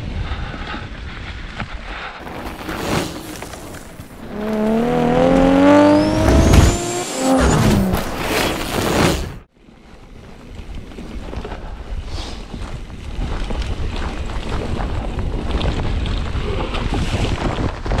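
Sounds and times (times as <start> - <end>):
tyres rumbling on dirt trail: 0.0 - 18.0
wind buffeting microphone: 10.1 - 18.0.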